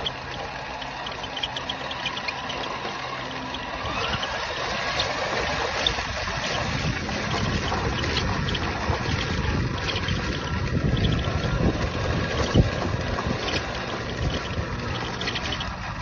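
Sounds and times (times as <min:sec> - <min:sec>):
faint motor whine: 0:00.0 - 0:16.0
tyres rolling over rough road: 0:00.0 - 0:16.0
wind buffeting microphone: 0:03.6 - 0:16.0.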